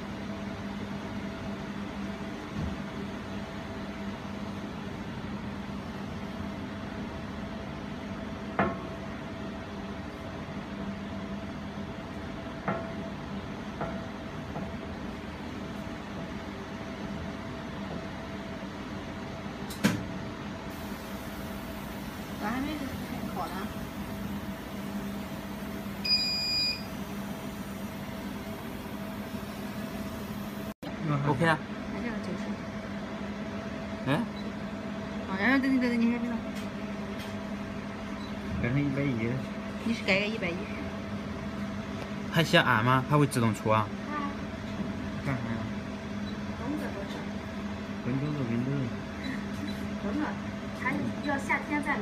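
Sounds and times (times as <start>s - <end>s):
welding machine humming: 20.7s - 30.8s
electronic beep: 26.0s - 26.9s.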